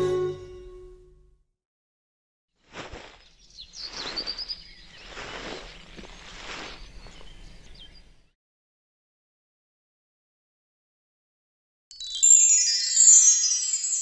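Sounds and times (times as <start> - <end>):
bird chirps: 3.1 - 8.3.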